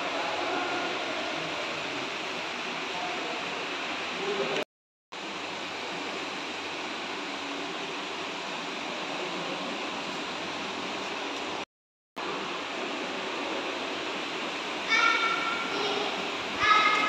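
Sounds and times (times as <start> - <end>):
indoor room hiss: 0.0 - 4.6, 12.2 - 17.0.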